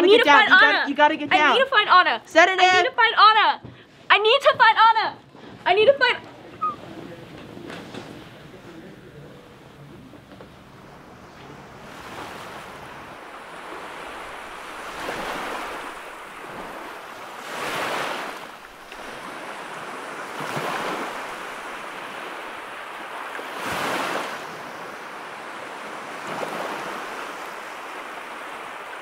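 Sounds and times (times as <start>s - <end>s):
small waves washing onto beach: 10.5s - 29.0s.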